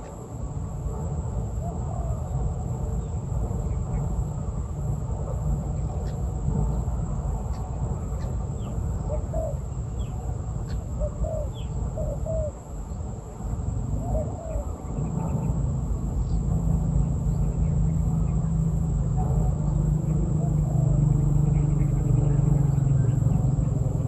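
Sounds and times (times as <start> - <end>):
steady low hum: 0.0 - 24.0
small birds chirping: 5.8 - 13.1, 19.4 - 24.0
doves cooing: 9.0 - 12.7, 13.8 - 15.5, 19.4 - 24.0
low rumble: 13.6 - 24.0.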